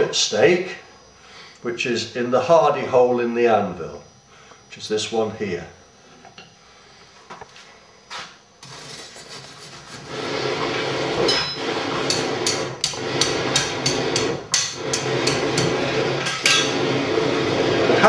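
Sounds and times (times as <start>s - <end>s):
forge fire roaring under air blast: 8.6s - 18.0s.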